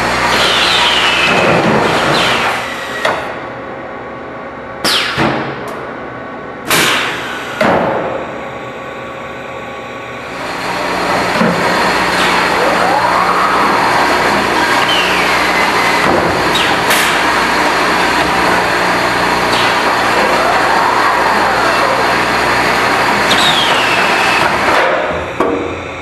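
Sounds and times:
motor whine: 7.0 - 26.0.

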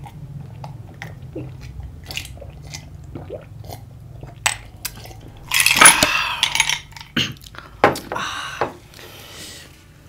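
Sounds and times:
ice cubes clinking in glass: 5.4 - 7.1.

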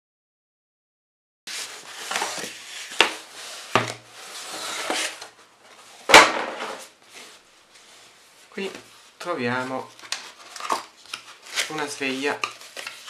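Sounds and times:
cardboard scraping: 1.5 - 13.0
cardboard tearing and rustling: 10.0 - 13.0.

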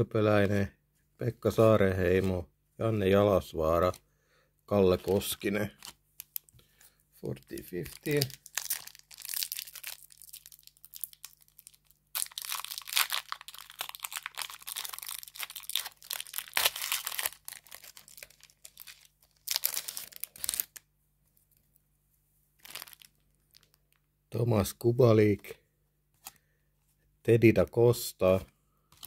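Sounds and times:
foil wrapper crinkling: 5.2 - 20.8, 22.6 - 24.0.

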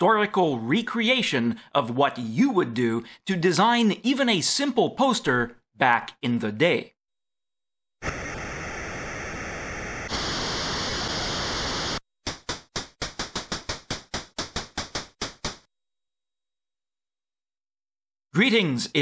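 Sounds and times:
synthesized noise hiss: 8.0 - 12.0.

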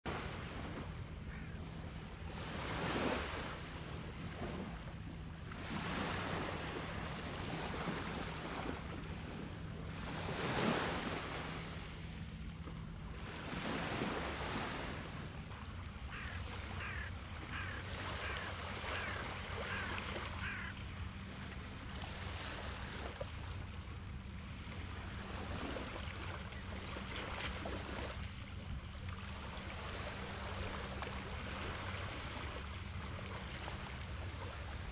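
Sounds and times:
small waves on pebble beach: 2.3 - 4.8, 5.5 - 11.9, 13.2 - 20.7, 21.8 - 23.6, 24.6 - 28.3, 29.2 - 34.9.

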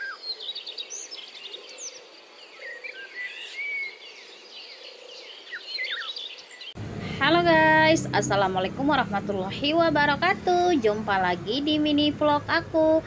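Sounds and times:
small birds chirping: 0.0 - 6.8.

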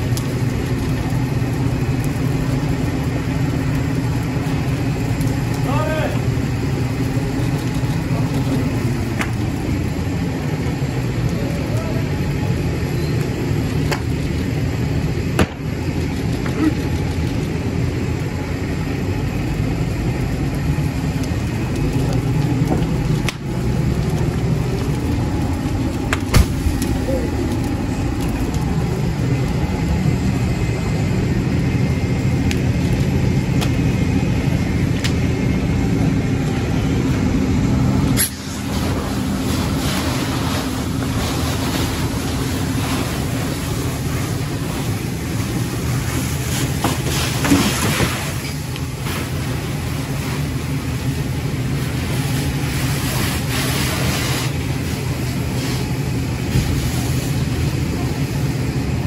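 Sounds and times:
burning car crackling and popping: 0.0 - 59.0
fire engine pump droning: 0.0 - 59.0
hiss of hose spray: 38.2 - 43.7, 51.9 - 55.9.

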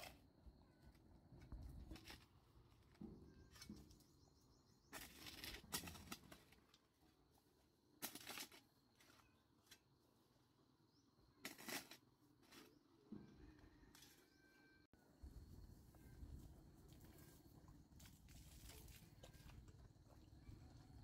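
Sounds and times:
hoe scraping clay soil: 0.0 - 0.8, 1.4 - 10.0, 11.2 - 13.2.

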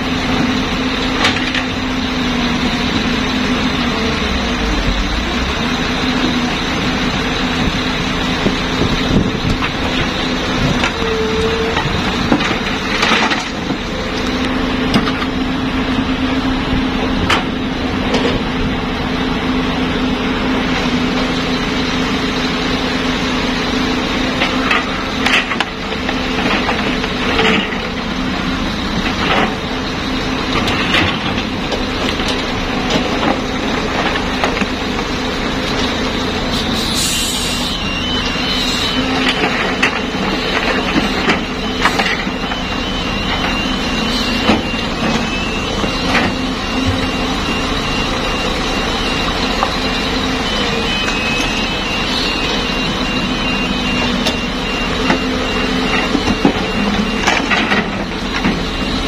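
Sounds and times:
excavator diesel engine: 0.0 - 59.0.

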